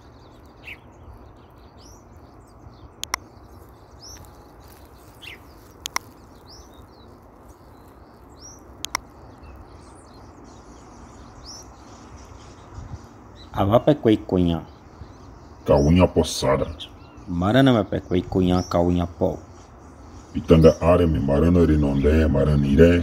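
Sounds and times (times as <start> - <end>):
birds chirping: 0.0 - 23.0
sharp double click: 3.0 - 3.2
steady hiss: 19.0 - 23.0.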